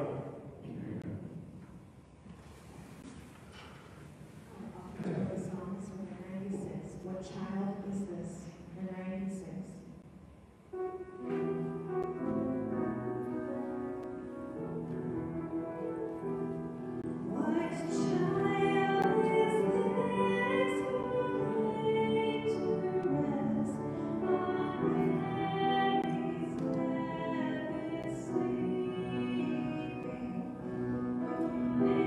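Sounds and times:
keyboard chords: 10.6s - 32.0s
person singing a hymn: 11.2s - 32.0s.

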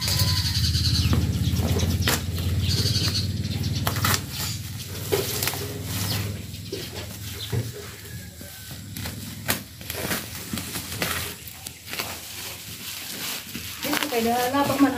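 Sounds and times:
bubble wrap crinkling: 8.0s - 14.9s.

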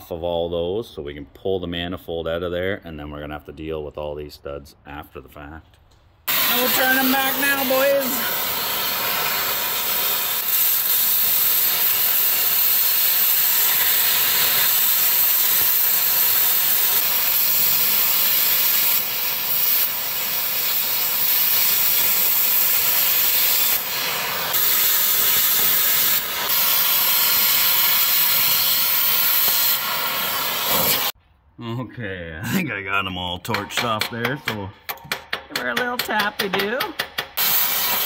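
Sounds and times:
cutting torch hissing: 6.2s - 31.2s, 37.3s - 38.0s.

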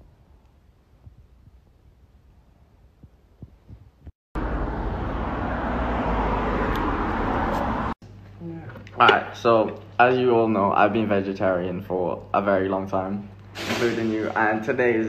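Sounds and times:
outdoor street noise: 4.4s - 8.3s.

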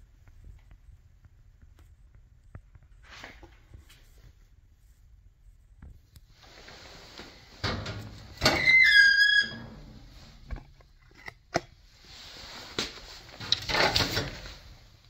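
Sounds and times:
high squeak: 8.4s - 10.0s.

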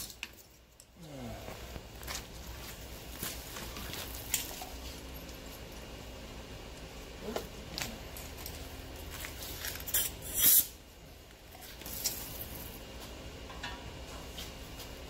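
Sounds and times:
compressed air hiss: 9.9s - 10.8s.

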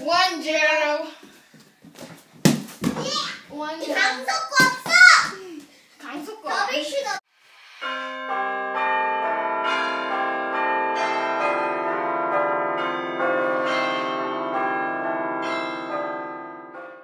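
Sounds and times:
bell-like chime music: 7.7s - 17.0s.

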